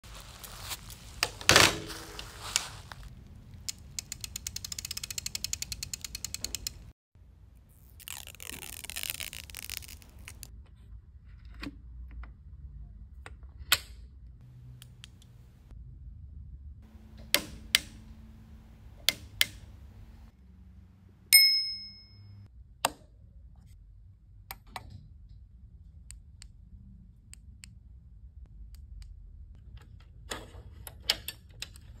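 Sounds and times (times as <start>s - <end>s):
bicycle freewheel ratcheting clicks: 3.7s - 6.9s
bright ringing ding: 21.3s - 22.4s.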